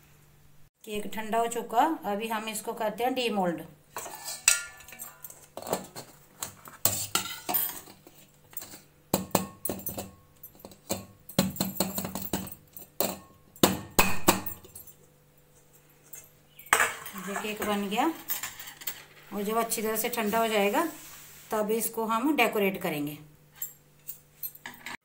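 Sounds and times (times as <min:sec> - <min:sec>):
metal plate clinking on cake tin: 0:04.0 - 0:05.9.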